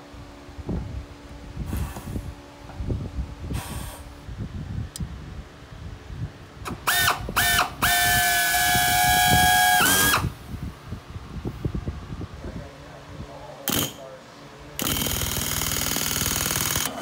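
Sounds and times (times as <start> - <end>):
hiss of exhaust air: 1.6 - 2.3, 3.4 - 4.3
pneumatic air drill whine: 3.5 - 4.1, 6.6 - 10.4, 13.7 - 14.0, 14.8 - 17.0.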